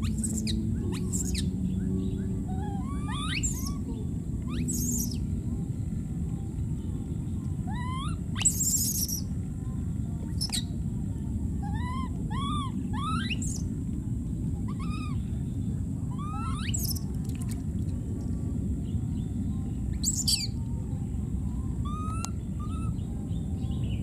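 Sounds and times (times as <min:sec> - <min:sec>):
low rumbling noise: 0:00.0 - 0:24.0
baby monkey crying: 0:02.5 - 0:03.9, 0:04.5 - 0:05.2, 0:07.7 - 0:09.2, 0:11.6 - 0:13.6, 0:14.7 - 0:15.2, 0:16.1 - 0:17.0, 0:21.8 - 0:23.0.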